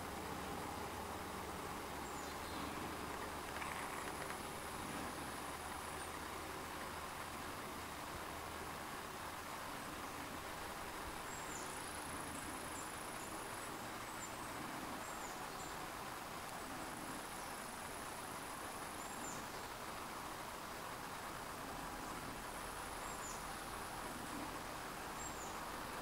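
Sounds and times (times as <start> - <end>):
steady hiss: 0.0 - 26.0
insects trilling: 2.0 - 6.5.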